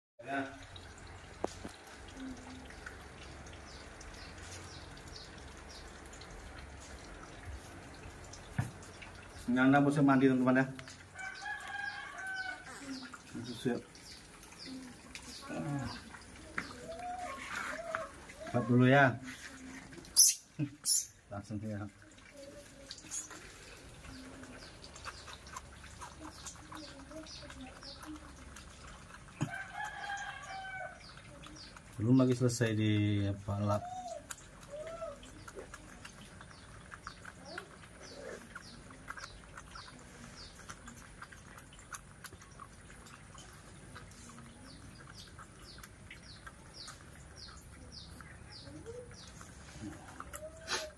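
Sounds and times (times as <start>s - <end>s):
high-pitched chirps: 20.2s - 21.2s.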